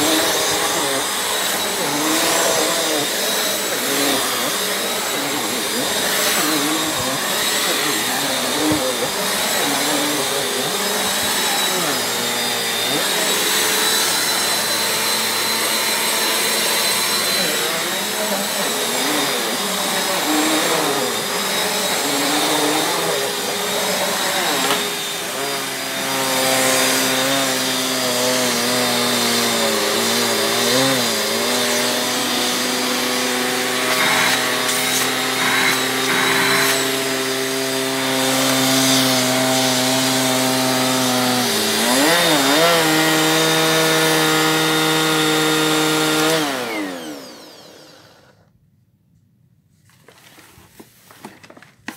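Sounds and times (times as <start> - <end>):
vacuum cleaner running: 0.0 - 48.5.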